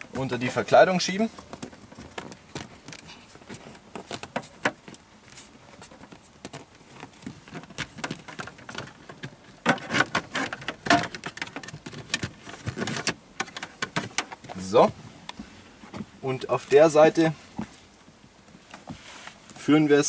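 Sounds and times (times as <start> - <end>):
cable scraping plastic trim: 7.5 - 14.3.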